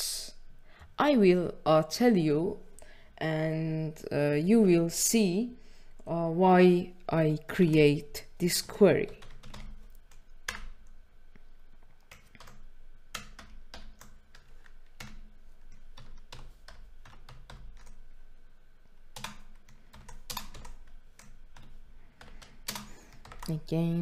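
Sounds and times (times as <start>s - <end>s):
keyboard typing: 7.6s - 11.0s, 12.0s - 18.1s, 19.1s - 23.7s.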